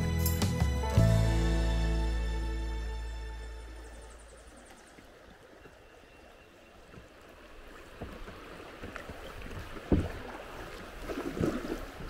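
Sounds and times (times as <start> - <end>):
paddle strokes splashing water: 4.2 - 12.0.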